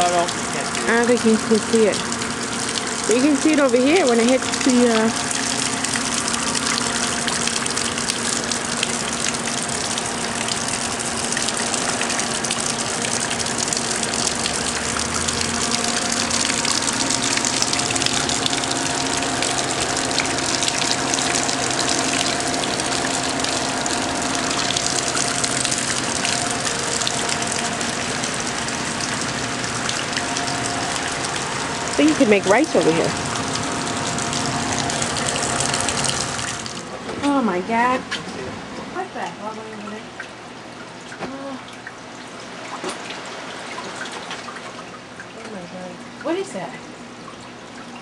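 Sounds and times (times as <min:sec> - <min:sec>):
water splashing on ground: 0:00.0 - 0:36.9
heavy rain pouring: 0:00.0 - 0:37.8.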